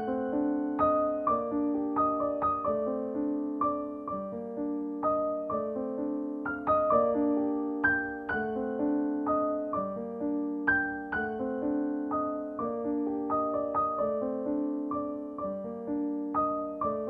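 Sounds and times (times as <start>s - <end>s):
gentle piano melody: 0.0s - 17.0s.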